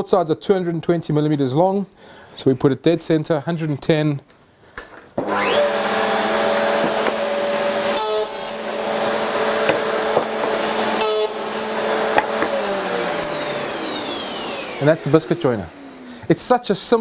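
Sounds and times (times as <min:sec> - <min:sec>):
router cutting into wood: 0:05.2 - 0:16.6
router whining: 0:05.2 - 0:17.0.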